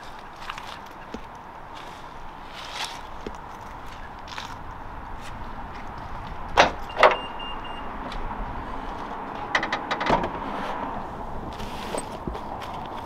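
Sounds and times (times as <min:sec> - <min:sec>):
faint high beep: 0:06.9 - 0:07.9
clicks and knocks: 0:09.4 - 0:10.3.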